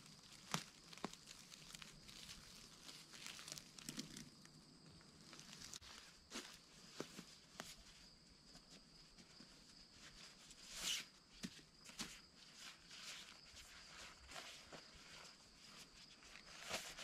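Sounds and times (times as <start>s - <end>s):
footsteps on dry leaves: 0.0s - 4.3s, 5.2s - 6.9s
fabric rustle: 5.2s - 17.0s.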